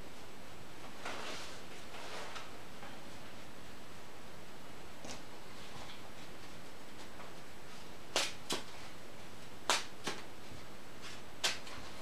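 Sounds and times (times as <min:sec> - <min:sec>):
trading cards snapping: 0:08.1 - 0:08.7, 0:09.7 - 0:10.3, 0:11.4 - 0:11.8.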